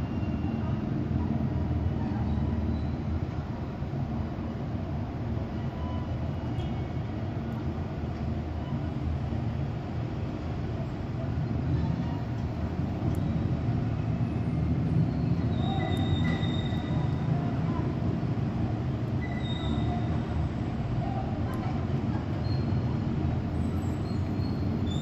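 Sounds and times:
faint high squeal: 0:00.0 - 0:00.8, 0:01.9 - 0:03.2, 0:05.5 - 0:07.0, 0:14.2 - 0:18.0, 0:19.2 - 0:20.4, 0:22.3 - 0:22.9, 0:23.5 - 0:25.0.

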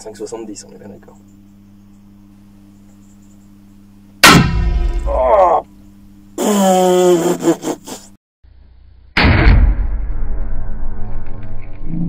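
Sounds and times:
faint low hum: 0:00.0 - 0:09.2
loud gunshot: 0:04.2 - 0:05.3, 0:09.2 - 0:10.4.

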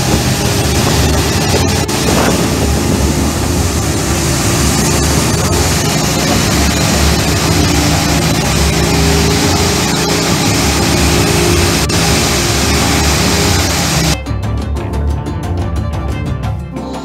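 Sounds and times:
power trowel droning: 0:00.0 - 0:14.2.

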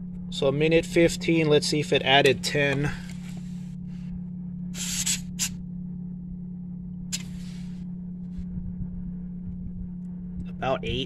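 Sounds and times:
low machine hum: 0:00.0 - 0:11.0
air hissing from tire valve: 0:04.8 - 0:05.6.

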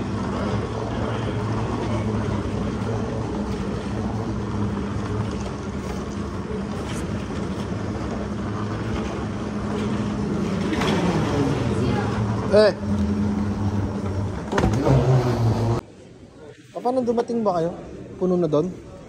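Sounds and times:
moving walkway humming: 0:00.0 - 0:19.0.

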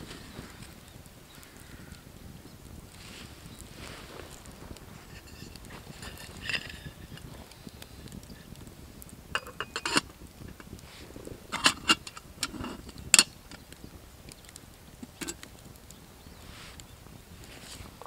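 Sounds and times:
metal kettle clinks: 0:05.1 - 0:07.5, 0:09.3 - 0:10.7, 0:11.5 - 0:13.3.

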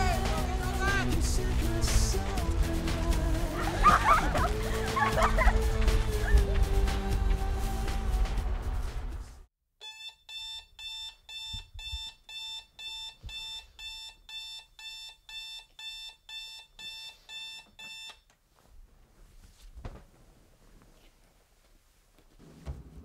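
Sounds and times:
music: 0:00.0 - 0:09.5
alarm clock beeping: 0:09.8 - 0:18.2.

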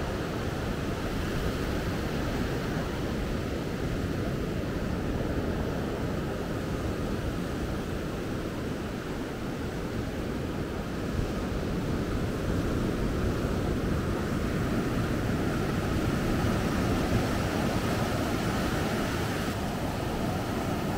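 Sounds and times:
surf washing onto sand: 0:10.3 - 0:20.9.

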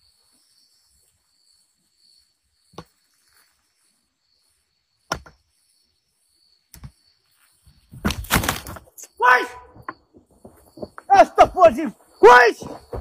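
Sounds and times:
night insects chirring: 0:00.0 - 0:13.0.

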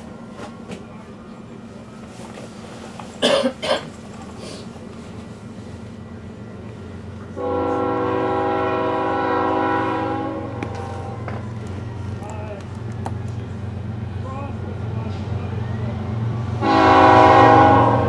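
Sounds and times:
locomotive air horn: 0:07.4 - 0:11.3, 0:16.6 - 0:18.0.

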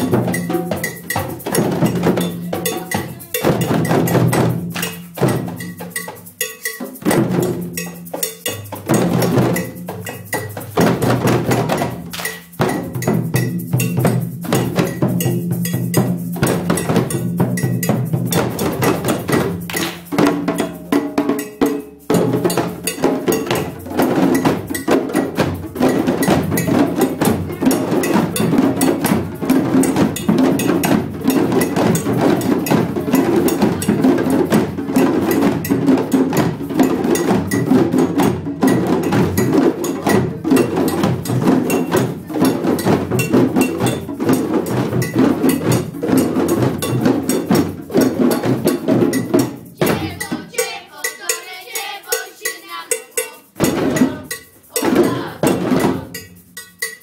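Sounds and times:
djembe drums: 0:00.0 - 0:57.0.

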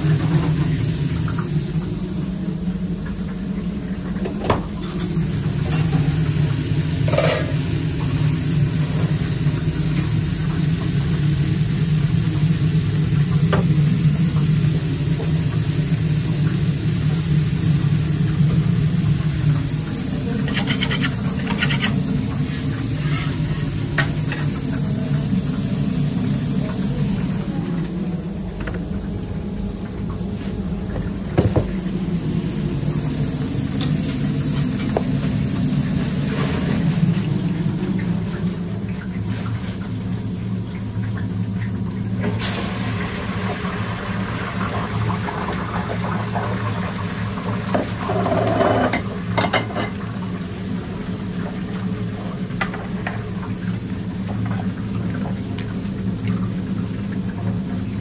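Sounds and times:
burgers sizzling on a grill: 0:00.0 - 0:02.1, 0:05.1 - 0:27.6, 0:31.9 - 0:38.3, 0:42.2 - 0:58.0.

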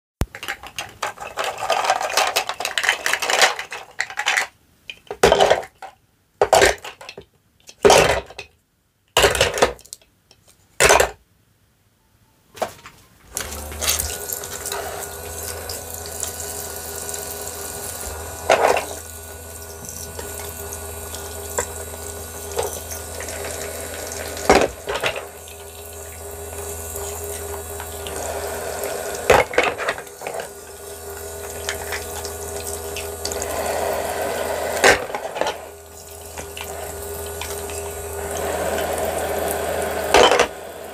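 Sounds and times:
plastic toy pieces clattering: 0:00.3 - 0:08.5, 0:13.4 - 0:33.5, 0:34.8 - 0:38.0, 0:40.0 - 0:40.6
small electric pump humming: 0:13.3 - 0:40.9
water streaming from faucet: 0:13.4 - 0:29.4, 0:30.0 - 0:34.9, 0:35.7 - 0:40.2.

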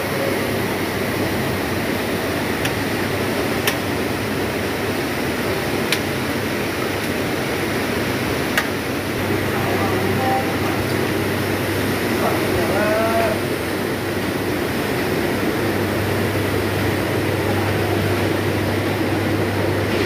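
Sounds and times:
river rushing: 0:00.0 - 0:20.0.

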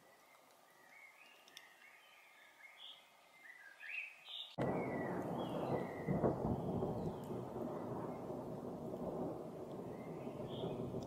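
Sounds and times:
chaffinch chirping: 0:00.0 - 0:08.6, 0:09.5 - 0:11.0
thunder rumbling: 0:04.6 - 0:11.0.

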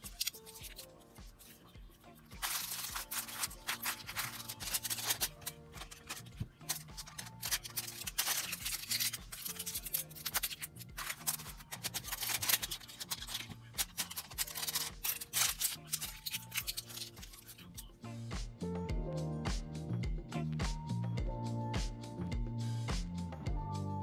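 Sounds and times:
aluminium foil crinkling: 0:00.0 - 0:17.9
background music with low notes: 0:00.0 - 0:24.0.

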